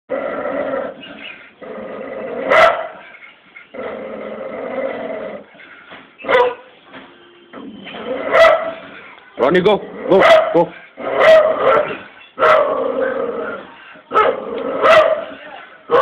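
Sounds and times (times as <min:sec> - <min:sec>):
dog growling: 0:00.1 - 0:02.6, 0:03.7 - 0:05.5, 0:12.6 - 0:15.0
dog barking: 0:02.5 - 0:03.0, 0:06.2 - 0:06.7, 0:08.2 - 0:08.9, 0:10.2 - 0:12.8, 0:14.1 - 0:16.0.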